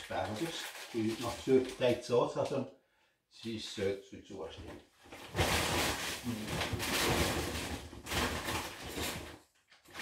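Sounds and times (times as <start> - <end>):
plastic bags rustling: 0.0 - 2.2, 5.0 - 10.0.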